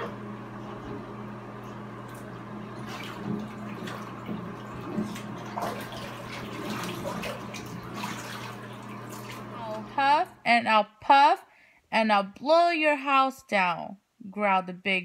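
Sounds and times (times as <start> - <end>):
steady low hum: 0.0 - 11.9
bathwater sloshing and splashing: 0.7 - 9.9.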